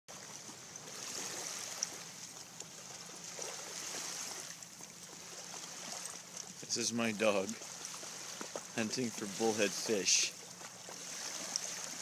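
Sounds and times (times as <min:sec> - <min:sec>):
faint water splashes: 0:00.1 - 0:12.0
shallow water trickling: 0:00.1 - 0:12.0.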